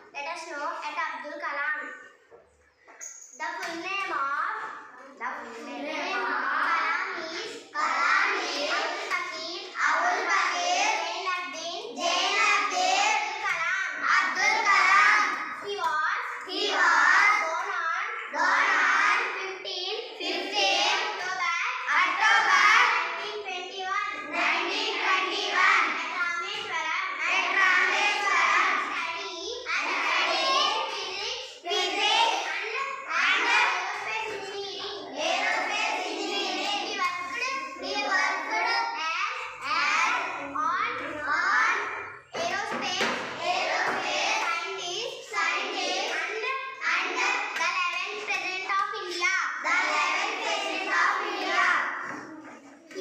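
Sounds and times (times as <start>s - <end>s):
girl reciting sentences: 0.0s - 53.0s
children singing in unison: 24.2s - 26.1s, 27.2s - 28.9s, 35.0s - 36.9s, 49.7s - 52.4s.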